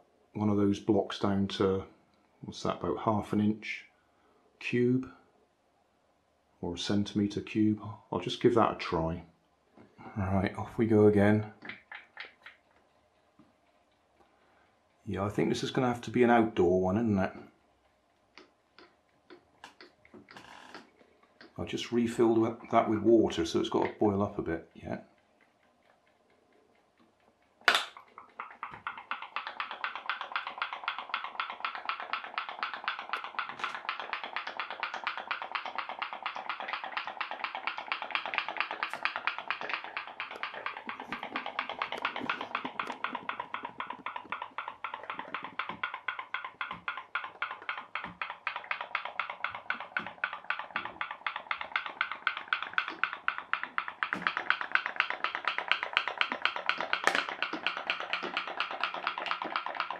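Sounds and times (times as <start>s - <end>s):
steam boat boiler popping: 10.6s - 12.8s, 18.4s - 25.8s, 27.0s - 59.9s
sharp click: 27.6s - 59.9s.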